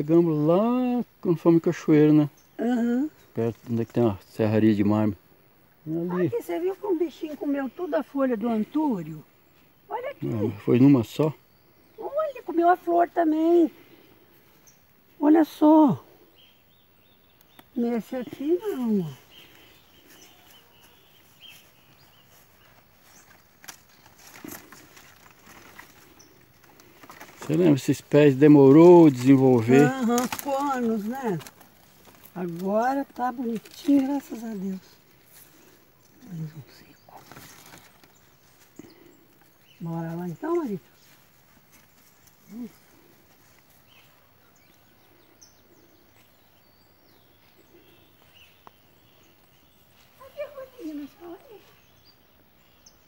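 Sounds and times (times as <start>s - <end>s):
faint bird chirps: 5.8s - 28.0s, 29.4s - 53.0s
light rustling: 17.4s - 45.2s
footsteps on grass: 18.0s - 45.3s, 47.3s - 52.0s.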